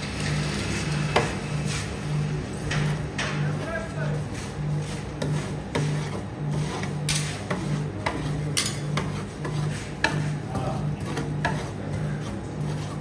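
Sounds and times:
metal spatulas scraping cold plate: 4.4s - 13.0s.

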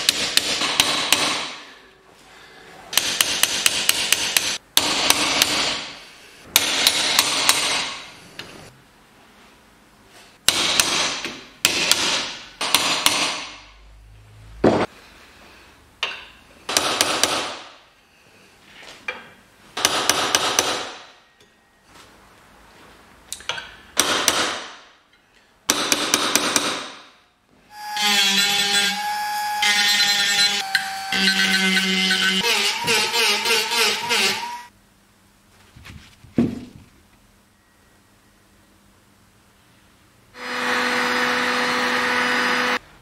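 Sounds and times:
rotary tool whining: 27.8s - 34.7s.

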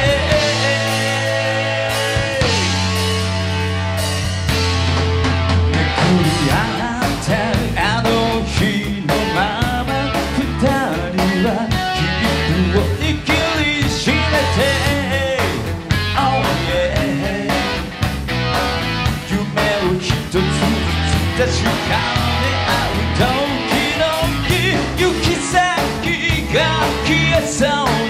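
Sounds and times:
lead vocal singing: 0.0s - 3.1s, 5.7s - 17.9s, 19.2s - 28.0s
live rock band playing: 0.0s - 28.0s.

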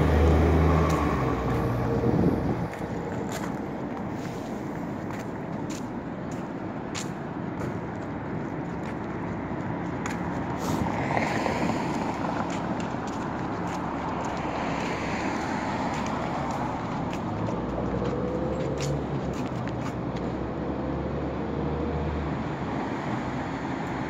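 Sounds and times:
cars driving past: 0.0s - 24.0s
road noise: 0.0s - 24.0s.

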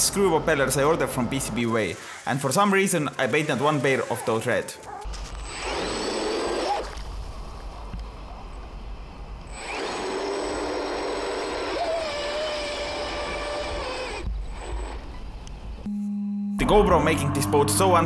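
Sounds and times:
electric motor whining: 9.5s - 15.7s.

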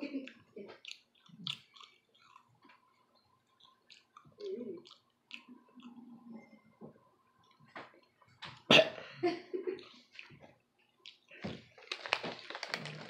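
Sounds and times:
person chewing candy: 0.2s - 6.5s, 7.3s - 8.3s, 9.8s - 13.0s
person coughing: 8.7s - 9.1s.

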